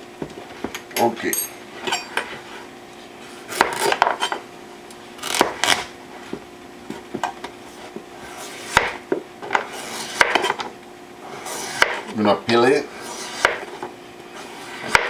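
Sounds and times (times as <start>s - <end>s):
knife cutting squash on board: 3.5s - 4.3s, 5.2s - 5.9s, 7.8s - 10.6s, 11.6s - 12.2s, 13.1s - 13.8s, 14.7s - 15.0s.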